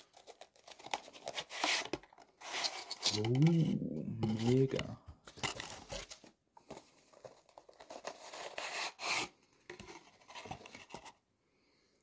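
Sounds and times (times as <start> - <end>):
cardboard packaging rustling: 0.0 - 11.2.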